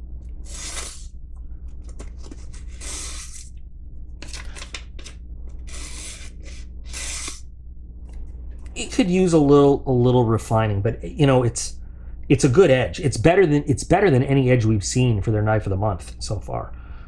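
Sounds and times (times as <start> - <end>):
blade slicing paper: 0.4 - 1.1, 2.5 - 3.5, 5.7 - 7.4.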